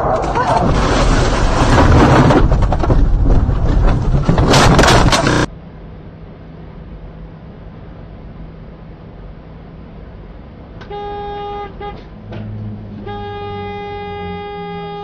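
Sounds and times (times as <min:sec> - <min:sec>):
highway road noise: 0:00.0 - 0:15.0
vehicle horn honking: 0:10.8 - 0:12.1, 0:13.0 - 0:15.0.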